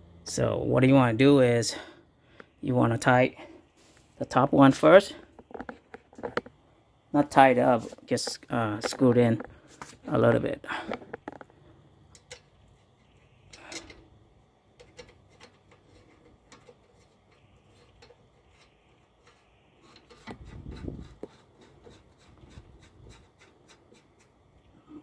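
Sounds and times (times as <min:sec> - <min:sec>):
tool scraping: 0:07.5 - 0:11.6, 0:14.8 - 0:24.5.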